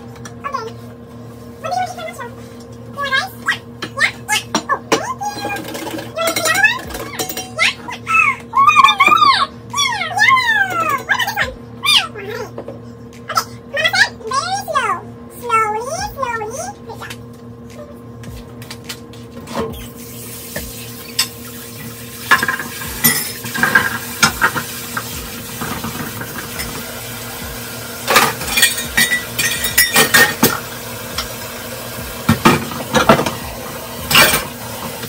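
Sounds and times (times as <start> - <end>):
dishes clinking and clattering: 4.5 - 7.6, 20.7 - 26.9, 28.0 - 31.4, 32.3 - 35.0
water running into a sink: 19.9 - 35.0.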